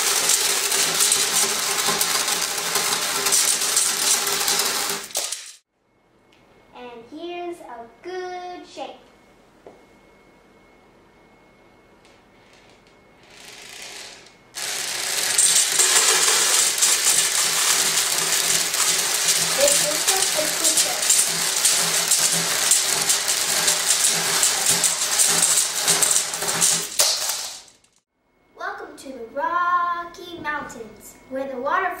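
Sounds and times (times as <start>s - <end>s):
beads clattering over table: 0.0s - 5.6s, 14.6s - 28.0s.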